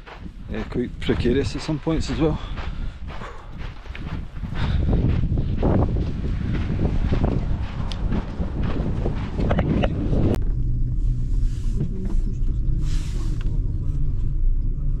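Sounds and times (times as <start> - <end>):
footsteps crunching on gravel: 0.0 - 10.4
cable car gondola rumble and hum: 0.0 - 15.0
wind on microphone: 0.0 - 15.0.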